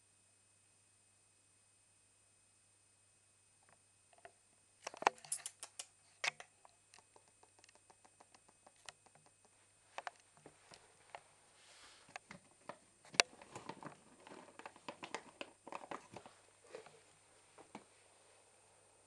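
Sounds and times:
dog claws clicking on tiles: 4.9 - 10.1.

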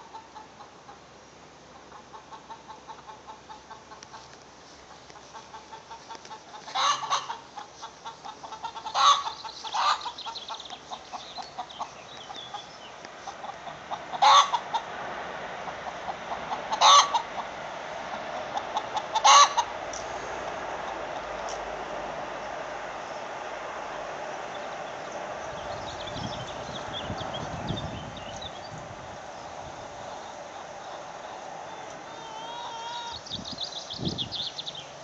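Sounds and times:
hens calling: 1.8 - 15.0, 15.6 - 19.8, 29.6 - 33.4.

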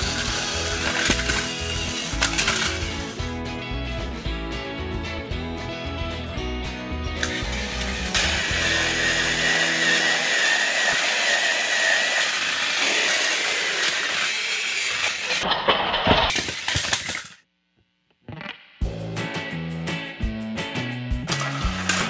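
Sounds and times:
toy train motors whining: 0.0 - 3.2, 7.2 - 15.4, 21.3 - 22.0
plastic toys clattering on floor: 0.1 - 3.1, 13.0 - 17.4, 21.3 - 22.0.

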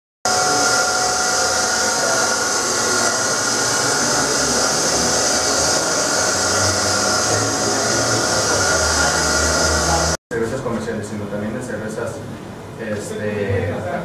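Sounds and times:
machinery whining tones: 0.3 - 10.2
machinery whirring: 0.3 - 10.2.

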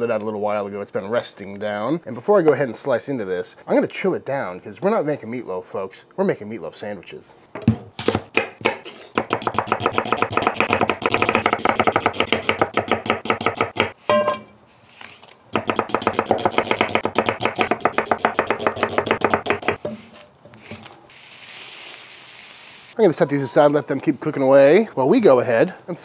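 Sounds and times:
knife slicing onion on wood: 7.6 - 14.2, 15.6 - 20.9.

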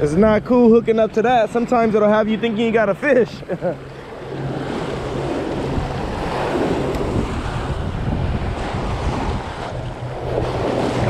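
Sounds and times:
surf washing around legs: 0.0 - 11.0
wind buffeting microphone: 0.0 - 11.0.

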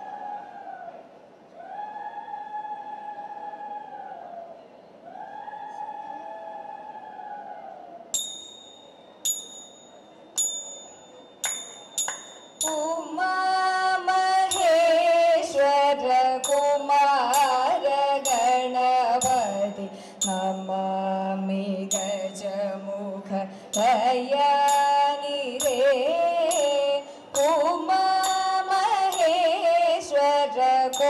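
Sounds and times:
small hand cymbals: 8.2 - 23.0, 23.6 - 31.0
women singing: 12.6 - 31.0.

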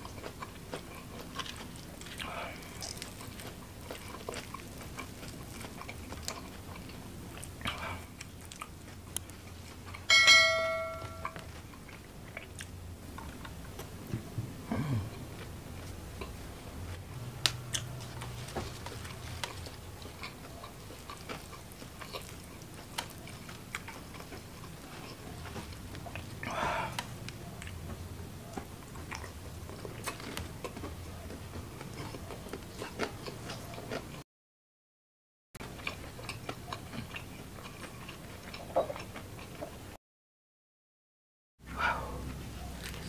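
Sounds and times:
chewing and biting: 0.0 - 10.1, 11.2 - 14.3, 17.5 - 34.2, 35.6 - 39.8, 42.6 - 43.0
sharp metallic clink: 10.1 - 11.4.

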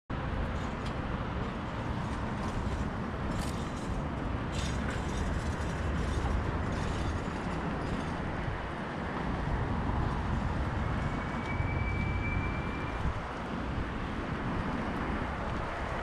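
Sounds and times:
road and traffic noise: 0.1 - 16.0
thin high whine: 10.8 - 13.2.

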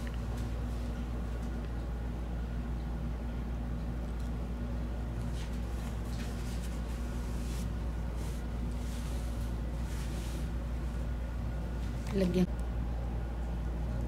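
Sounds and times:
steady low hum: 0.0 - 14.0
tissue wiping skin: 5.2 - 11.2.

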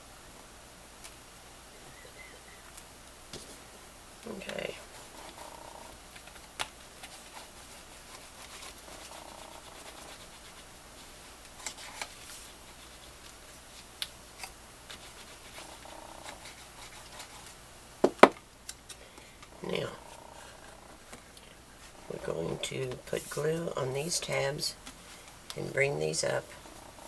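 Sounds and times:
cardstock rubbing and scratching: 4.3 - 13.9, 14.9 - 17.6.

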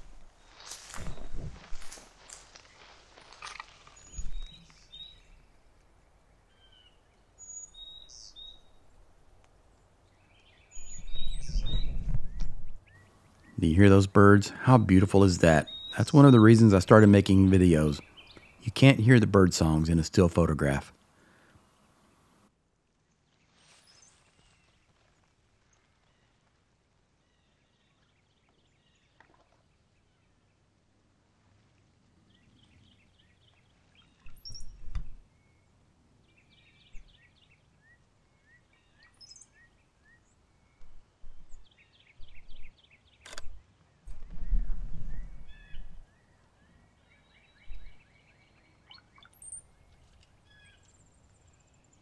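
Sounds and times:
footsteps on roadside verge: 0.0 - 4.0
brief rustle: 0.0 - 4.9
birds chirping: 0.0 - 9.0, 9.7 - 22.4
songbirds singing: 0.0 - 22.4, 32.2 - 52.0.

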